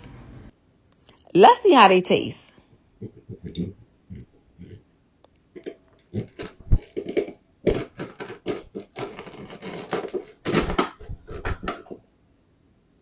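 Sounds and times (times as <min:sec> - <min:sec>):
knife crunching through sugar shell: 0:03.0 - 0:04.8, 0:05.6 - 0:12.1.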